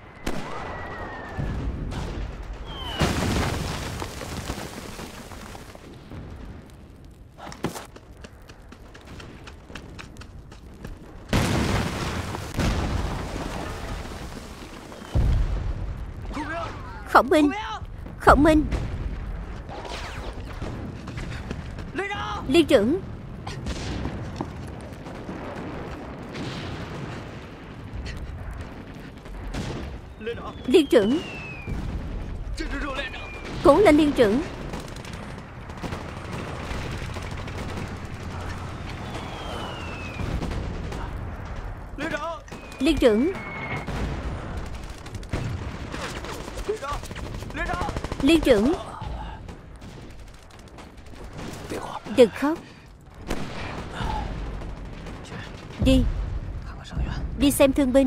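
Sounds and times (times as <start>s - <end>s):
loud explosion with rumble: 0.1s - 7.4s, 10.6s - 17.1s, 17.8s - 52.0s, 52.7s - 57.8s
high falling whistle: 0.3s - 1.6s, 2.6s - 3.1s, 30.4s - 31.8s, 38.9s - 40.4s, 42.5s - 43.9s
gunshots: 18.4s - 57.4s.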